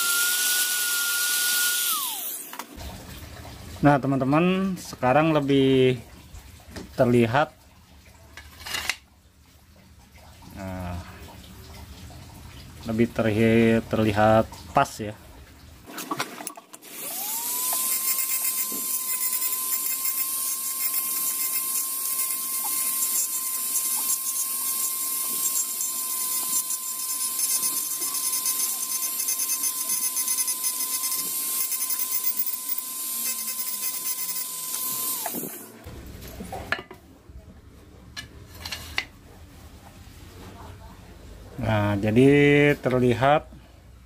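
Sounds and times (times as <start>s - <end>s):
engraving grinder whining: 0.0s - 2.6s, 16.9s - 35.8s.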